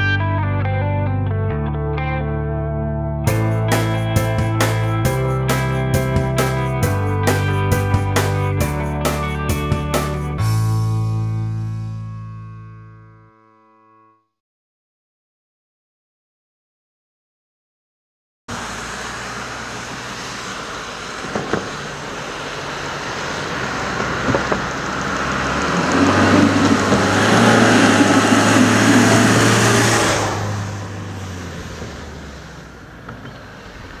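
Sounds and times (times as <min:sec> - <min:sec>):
minibus driving past: 0:18.5 - 0:34.0.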